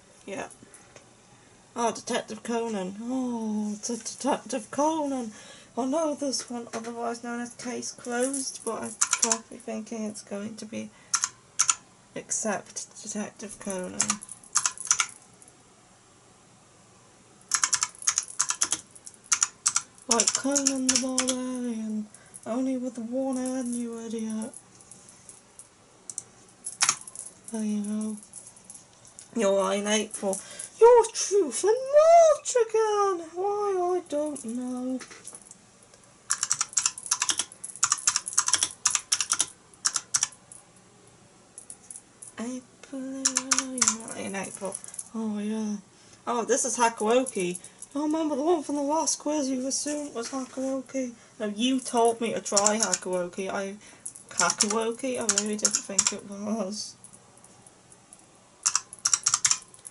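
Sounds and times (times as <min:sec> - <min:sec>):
keyboard typing: 0:08.9 - 0:09.5, 0:11.1 - 0:11.8, 0:14.0 - 0:15.2, 0:17.5 - 0:21.4, 0:26.8 - 0:27.1, 0:36.3 - 0:40.4, 0:43.2 - 0:44.2, 0:52.5 - 0:53.1, 0:54.3 - 0:56.2, 0:58.6 - 0:59.9.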